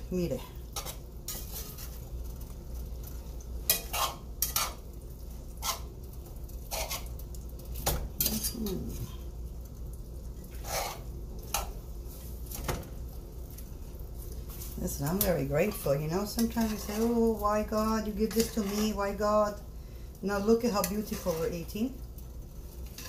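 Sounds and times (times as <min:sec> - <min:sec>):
metal spoon scraping a pan: 0:00.7 - 0:02.2, 0:03.6 - 0:04.9, 0:05.5 - 0:06.0, 0:06.6 - 0:07.2, 0:08.2 - 0:09.2, 0:10.5 - 0:11.8, 0:14.9 - 0:19.5, 0:20.5 - 0:21.8, 0:22.8 - 0:23.0.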